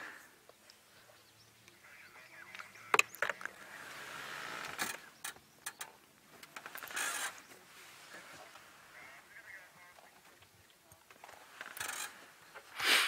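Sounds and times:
camera gear clicks and knocks: 2.6s - 3.6s.

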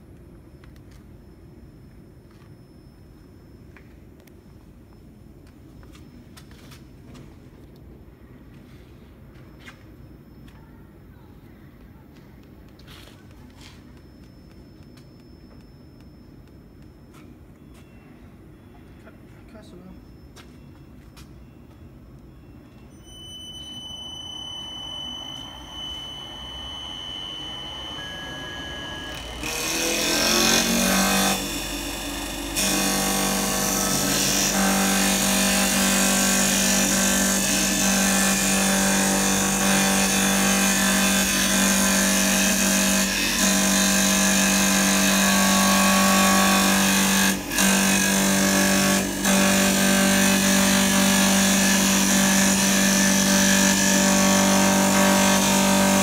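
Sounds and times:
faint high whine: 0.0s - 46.8s
lathe machine hum: 24.6s - 56.0s
blades cutting wood: 26.6s - 56.0s.

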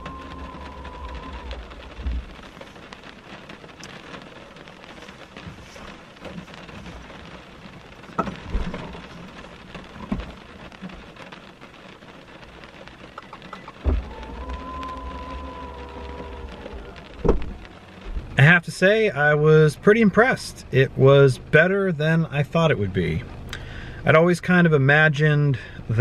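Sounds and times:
rain pattering on car: 0.0s - 26.0s
dull thumps: 13.4s - 14.6s.

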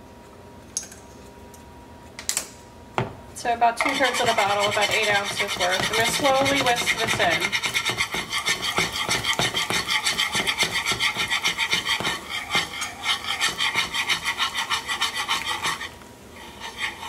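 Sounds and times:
wire whisk scraping a saucepan: 3.8s - 17.0s.

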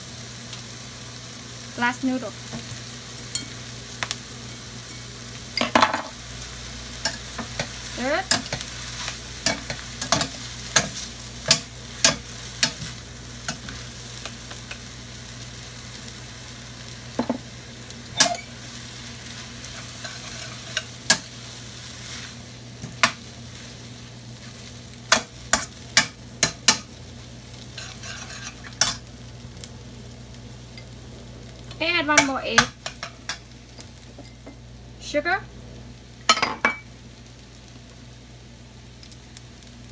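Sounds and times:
food sizzling in a skillet: 0.0s - 39.9s
spatulas scraping a pan: 19.3s - 23.8s, 27.7s - 29.0s.

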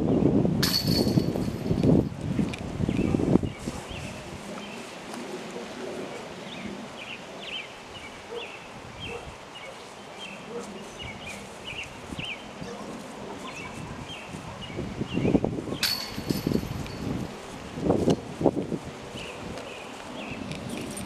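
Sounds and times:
footsteps on grass: 9.7s - 15.0s, 16.2s - 21.0s.

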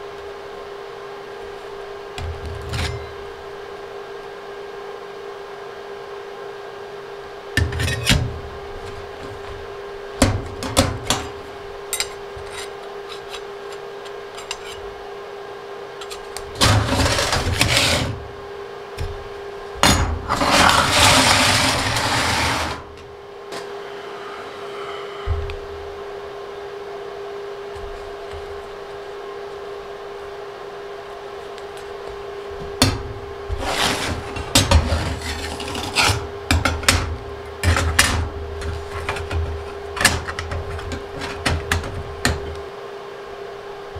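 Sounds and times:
steady hum: 0.0s - 43.9s
metal scraping across steel table: 16.0s - 18.2s, 20.2s - 22.9s, 33.5s - 36.2s.

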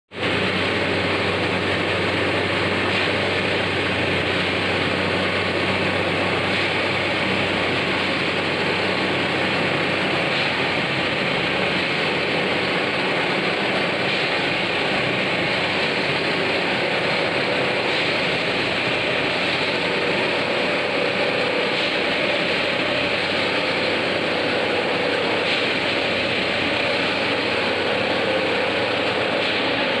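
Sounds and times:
machinery engine drone: 0.1s - 30.0s.

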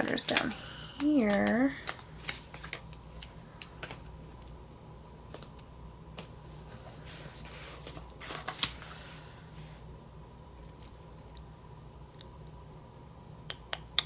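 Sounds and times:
paper rustling: 1.0s - 4.0s, 6.2s - 9.4s.

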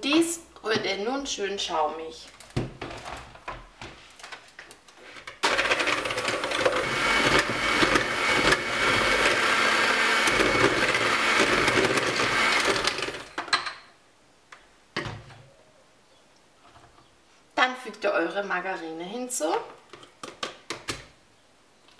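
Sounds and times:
electric hand mixer running: 5.4s - 13.3s.

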